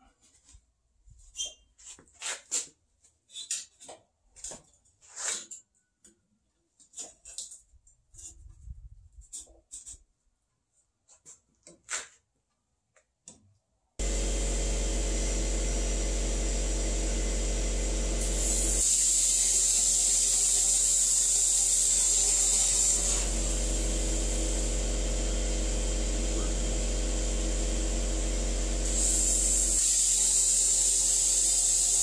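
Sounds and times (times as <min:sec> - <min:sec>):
torch cutting steel pipe: 0:14.0 - 0:32.0
loud hiss: 0:18.2 - 0:24.8, 0:28.8 - 0:32.0.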